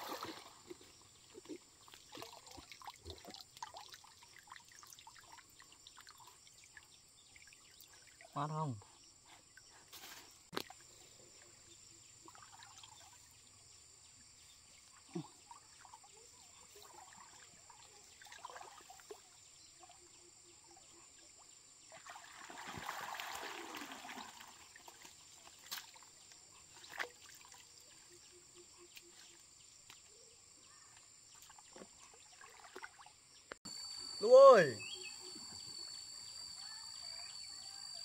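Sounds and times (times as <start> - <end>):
water trickling and splashing: 0.0 - 34.8
water pouring: 1.8 - 8.3, 22.0 - 24.9.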